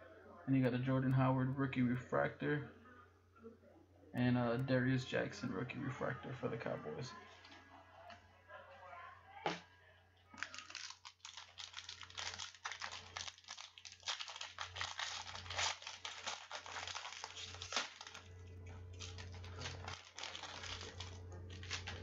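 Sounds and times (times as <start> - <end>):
wrapper crinkling and tearing: 10.3 - 22.0
steady low hum: 14.3 - 22.0.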